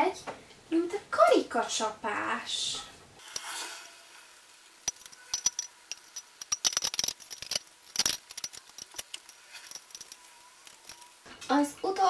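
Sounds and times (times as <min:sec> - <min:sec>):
metal tubes and fittings clicking: 0:03.2 - 0:03.7, 0:04.7 - 0:11.6.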